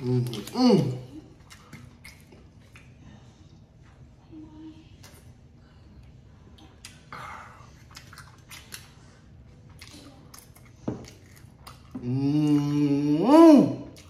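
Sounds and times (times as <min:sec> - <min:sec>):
person humming mmm: 0:00.0 - 0:01.2, 0:12.0 - 0:14.0
chewing with wet clicks: 0:01.2 - 0:03.2, 0:06.0 - 0:12.7.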